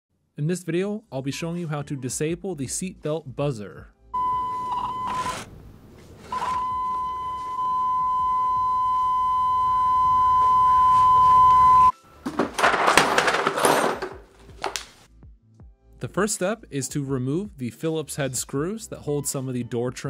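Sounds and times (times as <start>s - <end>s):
seat belt warning buzzer: 4.2s - 5.5s, 6.2s - 11.9s
metal hand tools clattering: 12.3s - 14.3s.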